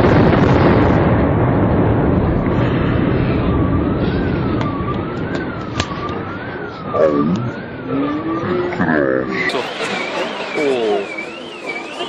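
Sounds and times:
building collapse rumble: 0.0 - 12.0
siren wailing: 2.8 - 12.0.

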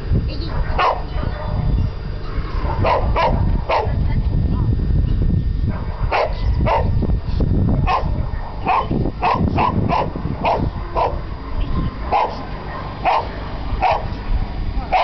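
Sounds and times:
dog barking: 0.5 - 1.6, 2.6 - 4.0, 5.7 - 6.9, 7.8 - 11.2, 12.1 - 14.1.

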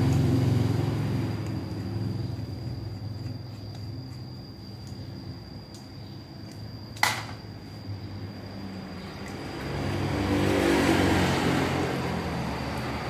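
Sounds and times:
motor vehicle passing: 8.4 - 13.0.

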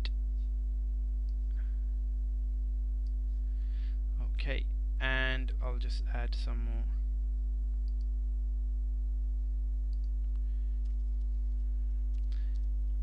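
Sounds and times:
electrical mains hum: 0.0 - 13.0
faint keyboard clicks: 12.1 - 12.7.

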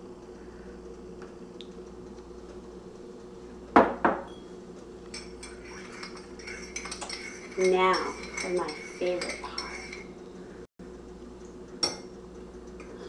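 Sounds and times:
faint steady hum: 0.0 - 13.0
spoon stirring in ceramic mug: 5.0 - 10.2
china clinking: 5.1 - 10.1.

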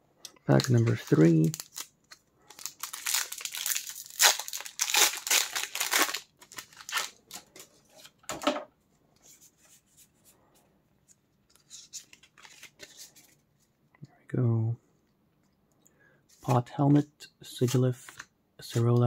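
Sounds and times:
foil wrapper tearing and crinkling: 0.6 - 7.5.

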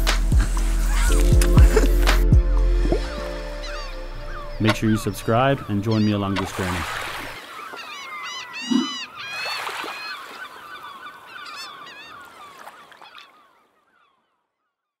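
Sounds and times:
flock of birds calling: 3.6 - 14.3.

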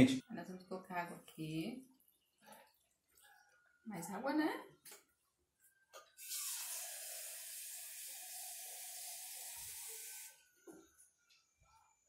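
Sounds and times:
tap water running: 6.0 - 10.9.

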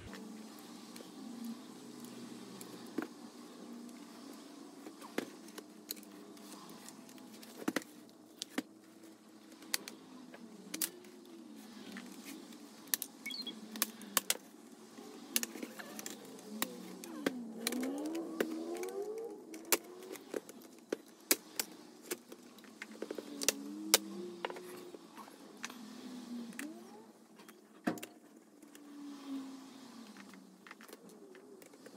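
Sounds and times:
plastic clips clicking and snapping: 15.3 - 24.6.

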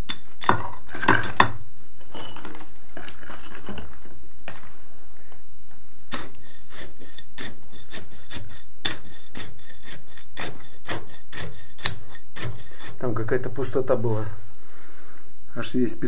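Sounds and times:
steel rod scraping on gravel: 6.1 - 13.0.

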